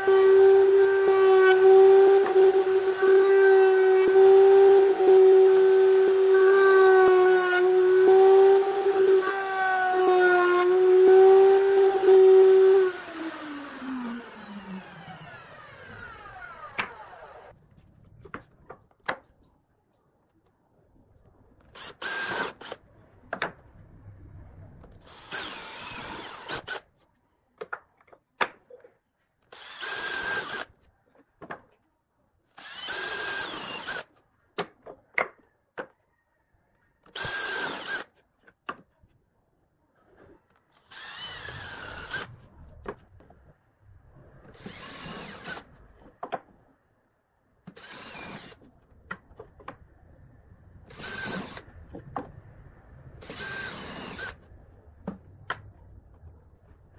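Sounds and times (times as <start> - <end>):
cordless drill boring into wood: 0.0 - 17.5, 21.8 - 22.8, 25.0 - 26.8, 29.5 - 30.7, 32.6 - 34.1, 37.0 - 38.1, 40.8 - 42.4, 44.6 - 45.7, 47.7 - 48.6, 50.9 - 51.7, 53.2 - 54.4
table saw motor winding down: 0.0 - 17.5, 40.8 - 42.3.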